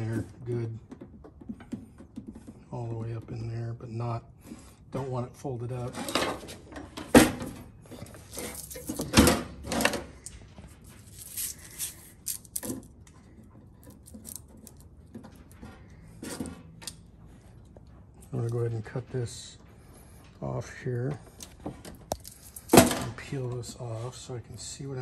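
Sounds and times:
tape rustling and clicking: 21.4 - 22.8.

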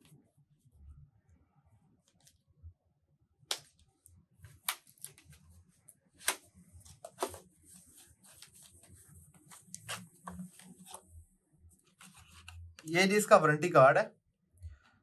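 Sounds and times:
paper cards rustling: 6.2 - 11.1.

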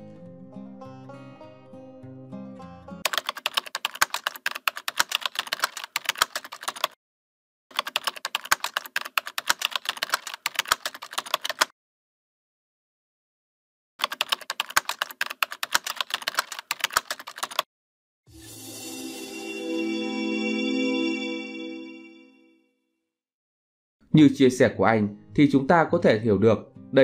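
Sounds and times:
keyboard typing clicks: 3.1 - 6.9, 7.7 - 11.7, 14.0 - 17.6.

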